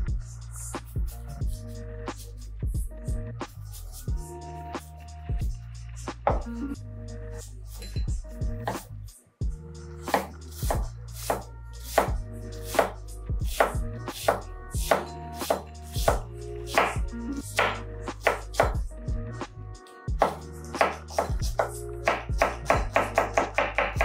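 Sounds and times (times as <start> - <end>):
knife chopping on cutting board: 6.3 - 6.5, 10.0 - 17.0, 17.6 - 18.8, 20.2 - 24.0.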